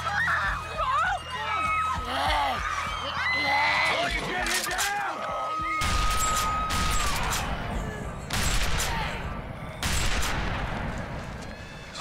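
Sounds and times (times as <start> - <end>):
gunshots with long echo: 5.8 - 11.8.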